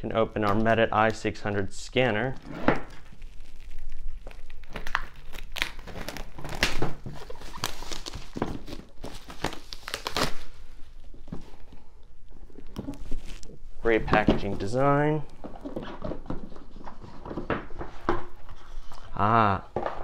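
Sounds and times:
cardboard packaging crinkling and tearing: 2.3s - 11.3s, 12.6s - 13.6s
boxes rustling and knocking: 6.5s - 9.4s, 13.8s - 20.0s.

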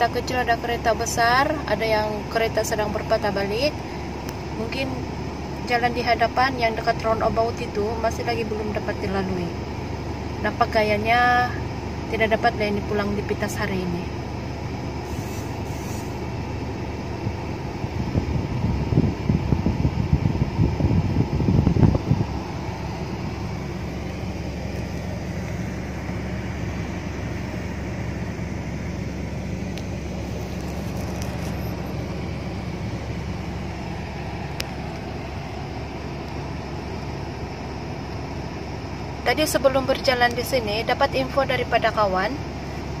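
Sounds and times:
car cabin hum: 0.0s - 43.0s
uneven rumble: 15.0s - 37.7s.

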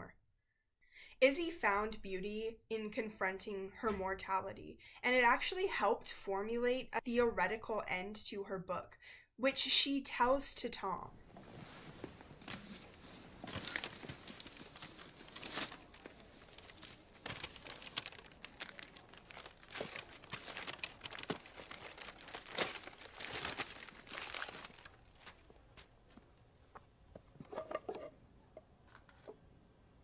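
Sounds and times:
wrapping paper tearing and crumpling: 12.2s - 25.4s.

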